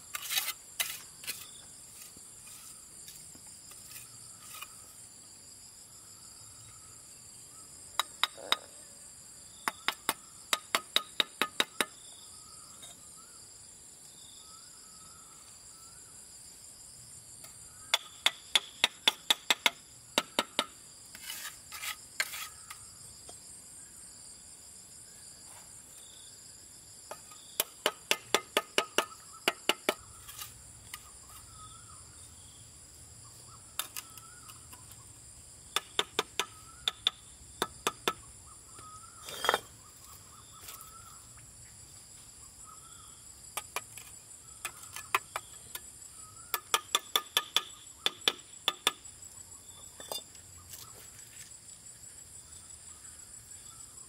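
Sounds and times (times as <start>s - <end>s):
insects trilling: 0.0s - 54.0s
trowel tapping bricks: 8.0s - 8.7s, 9.7s - 12.0s, 27.1s - 31.0s, 35.7s - 38.2s, 46.5s - 49.0s.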